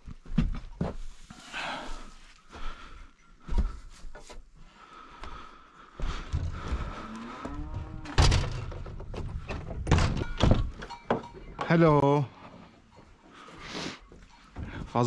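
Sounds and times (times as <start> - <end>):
wooden door creaking: 6.2 - 11.2
door thump: 8.1 - 9.0.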